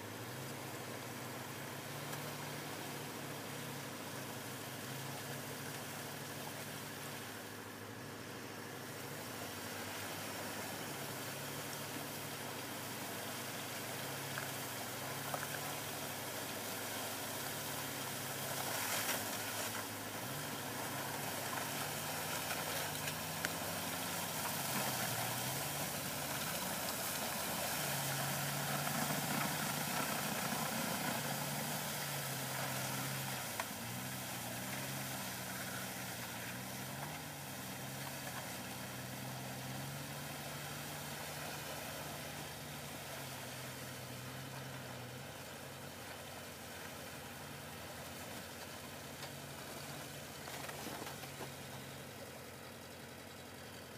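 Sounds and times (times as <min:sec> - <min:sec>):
steady hiss: 0:00.0 - 0:53.9
car engine revving: 0:08.3 - 0:46.4.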